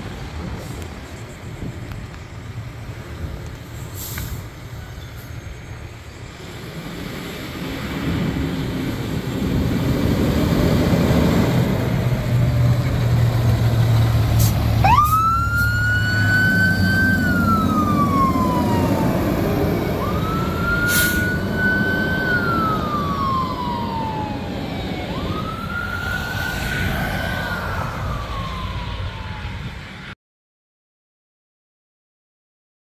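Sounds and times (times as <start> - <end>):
burst of hiss: 3.8 - 4.6
truck engine running: 6.3 - 25.7
fire engine siren wailing: 7.6 - 30.1.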